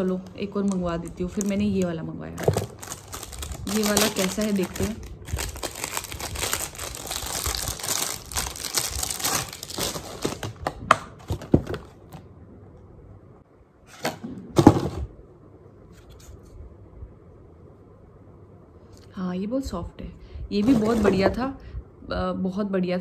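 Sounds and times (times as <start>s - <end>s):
plastic packaging crinkling and tearing: 0.0s - 10.8s.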